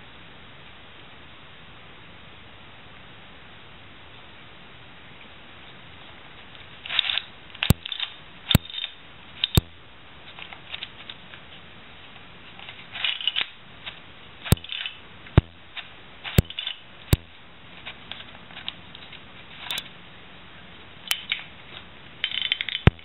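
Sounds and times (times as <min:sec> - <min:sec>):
plastic puzzle clicking and rattling: 0:06.9 - 0:09.6, 0:12.6 - 0:13.5, 0:14.5 - 0:15.0, 0:15.8 - 0:16.8, 0:21.1 - 0:23.0
sharp plastic snaps: 0:06.9 - 0:09.8, 0:13.0 - 0:17.4, 0:21.1 - 0:21.5, 0:22.3 - 0:23.0.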